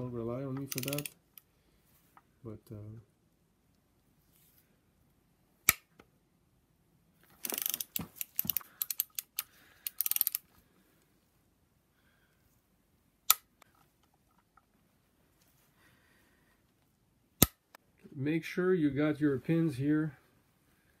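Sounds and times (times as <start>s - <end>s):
torque wrench click: 0.7s - 1.2s, 7.4s - 10.4s
wrench ratcheting: 0.7s - 1.2s, 7.4s - 10.4s.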